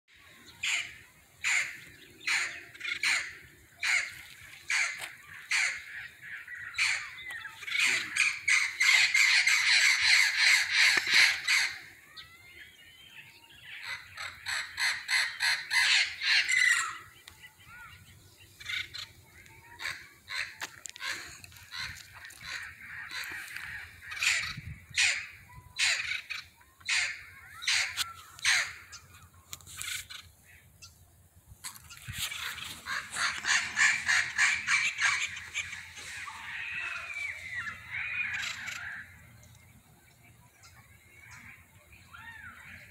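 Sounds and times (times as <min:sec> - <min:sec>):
parrots squawking: 0:00.6 - 0:12.3, 0:13.7 - 0:17.1, 0:18.6 - 0:29.0, 0:32.0 - 0:39.2.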